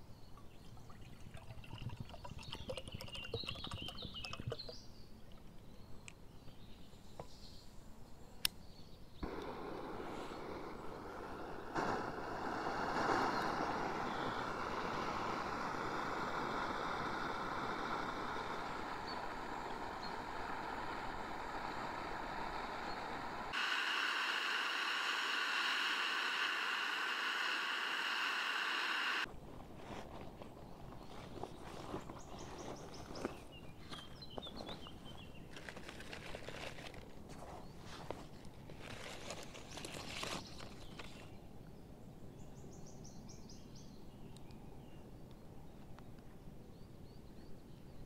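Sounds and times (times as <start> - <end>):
gas burner hissing: 9.2 - 29.3.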